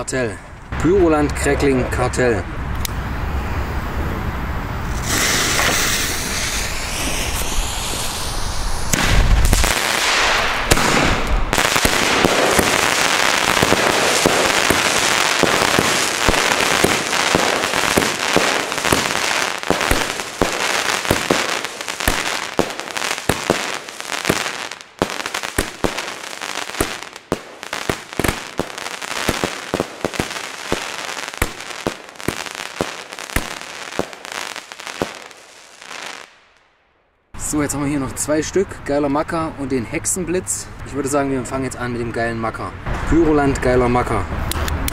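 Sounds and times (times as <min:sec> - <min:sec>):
firework crackling and pops: 0:04.8 - 0:36.6
firework launch thumps: 0:04.9 - 0:12.8.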